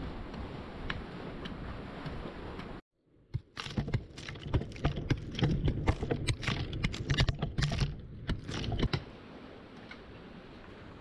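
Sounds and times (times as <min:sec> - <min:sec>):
clods of earth pattering down: 0:03.4 - 0:09.0.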